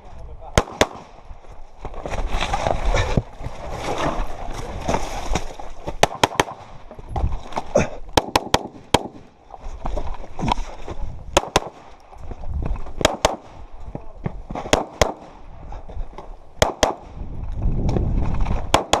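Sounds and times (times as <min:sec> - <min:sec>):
pistol shots: 0:00.6 - 0:01.2, 0:06.0 - 0:06.6, 0:11.4 - 0:11.9, 0:13.0 - 0:13.6, 0:14.6 - 0:15.4, 0:16.6 - 0:17.2, 0:18.7 - 0:19.0.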